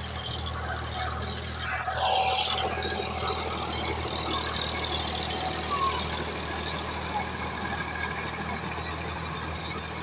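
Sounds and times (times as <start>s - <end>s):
tractor diesel engine under load: 0.0s - 10.0s.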